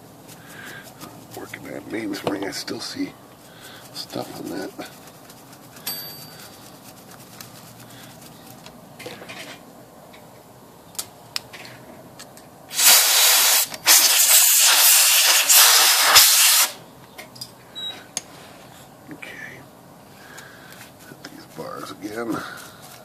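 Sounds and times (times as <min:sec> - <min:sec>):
brush scrubbing metal: 0:00.0 - 0:08.7, 0:20.7 - 0:23.0
compressed air hissing: 0:12.7 - 0:16.8.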